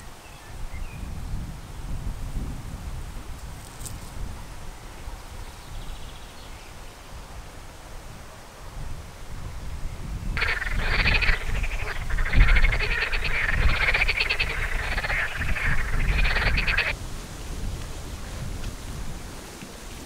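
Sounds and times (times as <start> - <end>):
wind rumble on microphone: 0.0 - 20.0
frogs croaking: 10.4 - 17.0.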